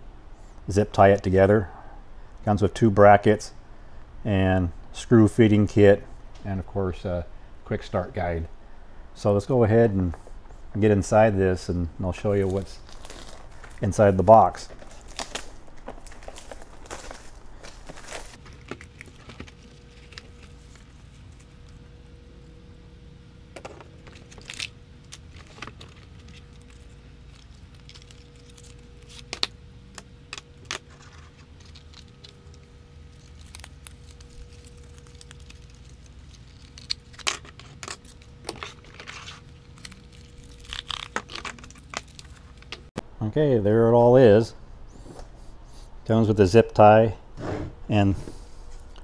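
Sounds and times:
packaging rustling: 12.2s - 21.7s, 24.0s - 42.9s.

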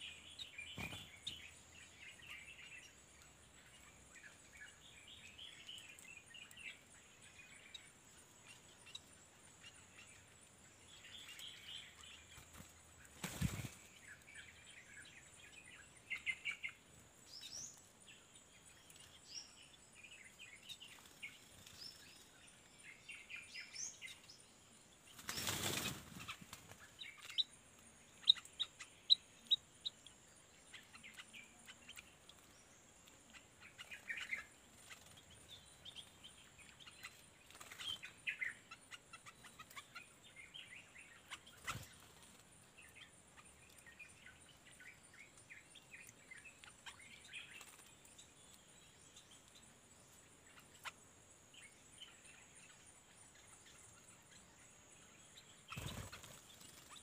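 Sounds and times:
small birds chirping: 0.0s - 57.0s.

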